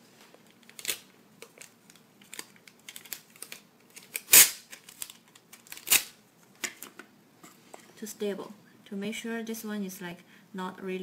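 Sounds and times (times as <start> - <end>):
tape ripping off roll: 2.3 - 6.2.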